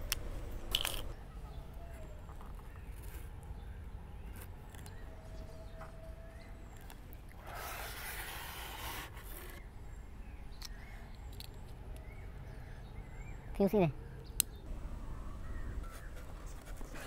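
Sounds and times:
small handling scrapes and clicks: 2.3s - 3.5s.

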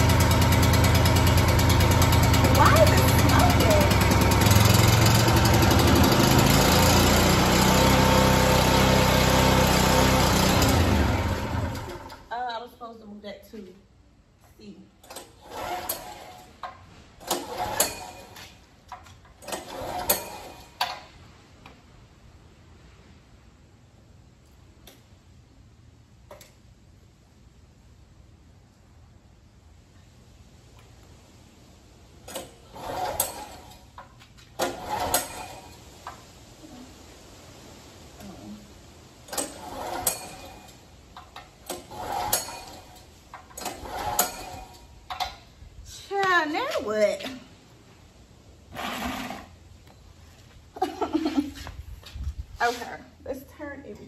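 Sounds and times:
engine turning over: 0.0s - 12.3s, 15.0s - 16.6s, 17.2s - 21.1s, 32.2s - 36.2s, 39.2s - 45.4s
generator recoil starter pulled: 0.0s - 12.3s, 15.0s - 21.2s, 32.2s - 36.2s, 39.2s - 45.5s.

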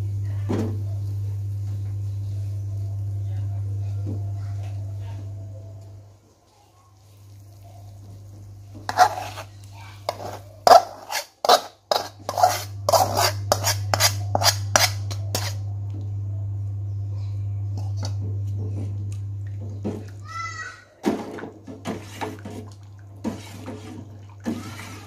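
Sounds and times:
metal spoon scraping metal pan: 8.9s - 15.6s.

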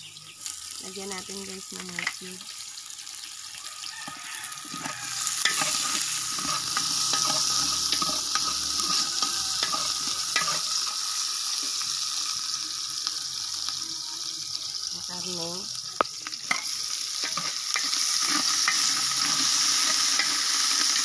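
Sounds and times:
garlic and onion sizzling in oil: 0.0s - 21.0s
metal ladle scraping a pot: 4.0s - 11.0s, 16.4s - 21.0s.

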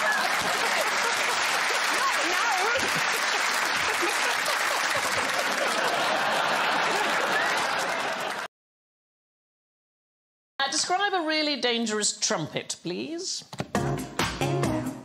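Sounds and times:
audience applauding: 0.0s - 8.5s
audience laughing: 0.0s - 8.5s.

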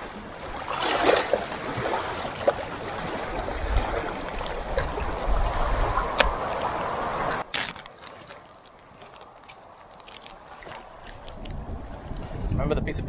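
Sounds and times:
wind gusting on microphone: 0.0s - 7.6s, 10.8s - 13.0s.

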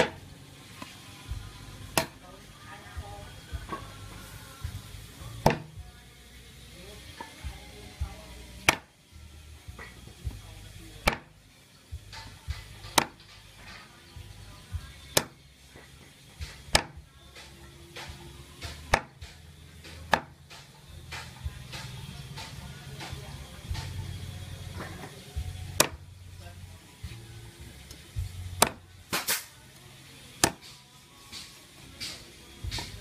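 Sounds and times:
cleaver chopping on wooden block: 5.4s - 5.7s, 8.6s - 8.9s, 11.0s - 11.3s, 12.8s - 13.2s, 16.5s - 17.0s, 18.7s - 23.1s, 28.6s - 29.4s, 30.4s - 30.8s.

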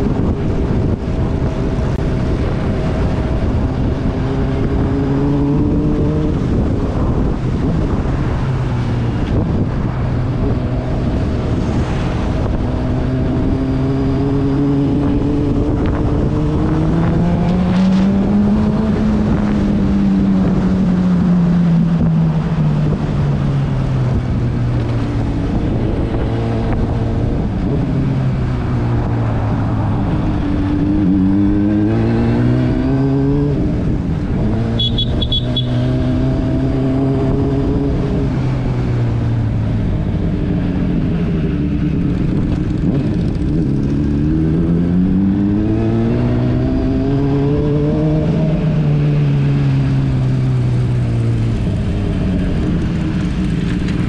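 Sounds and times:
steady rushing noise: 0.0s - 34.6s
motorcycle engine: 0.0s - 54.0s.

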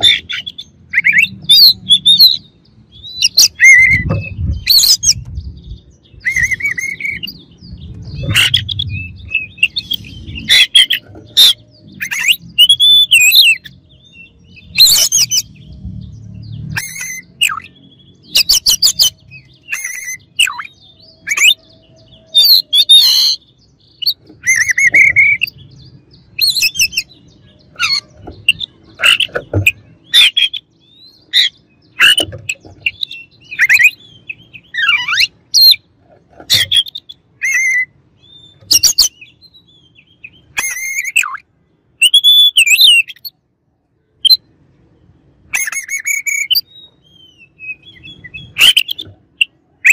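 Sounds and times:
bird singing whistled phrases: 0.1s - 5.2s, 6.1s - 7.4s, 16.7s - 23.4s, 24.0s - 25.6s, 36.6s - 41.4s, 42.0s - 43.3s, 45.6s - 49.9s.

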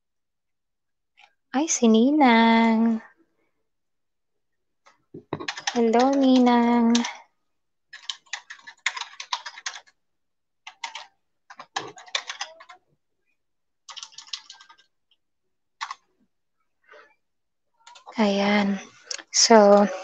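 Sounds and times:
typing on computer keyboard: 5.2s - 7.2s, 7.9s - 10.0s, 10.6s - 12.8s, 13.9s - 14.9s, 15.8s - 16.0s.

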